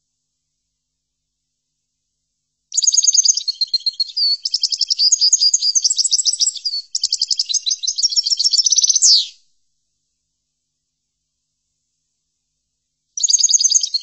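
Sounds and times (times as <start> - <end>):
goldfinch twittering song: 2.8 - 9.3, 13.2 - 14.0.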